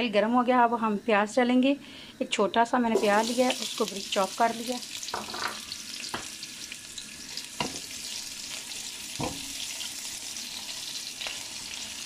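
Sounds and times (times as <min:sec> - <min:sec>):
onion sizzling in hot oil: 0:02.9 - 0:12.0.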